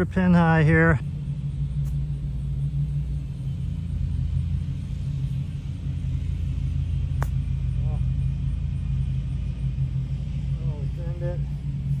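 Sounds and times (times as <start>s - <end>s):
held low hum: 0.0s - 12.0s
low motor rumble: 0.0s - 12.0s.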